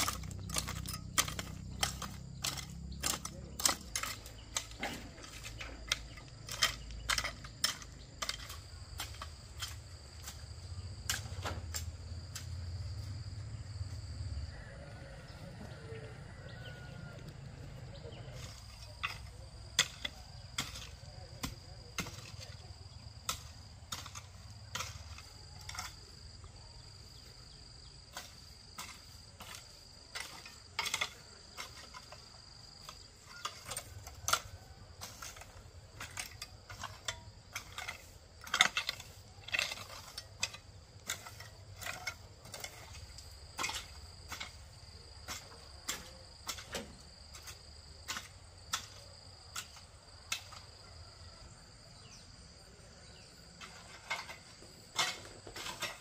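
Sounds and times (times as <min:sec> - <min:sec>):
insect high drone: 0:11.7 - 0:20.9.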